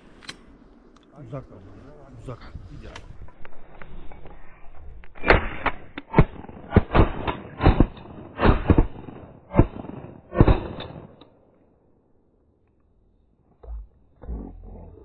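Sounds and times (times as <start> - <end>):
shotgun shots: 5.2 - 11.2.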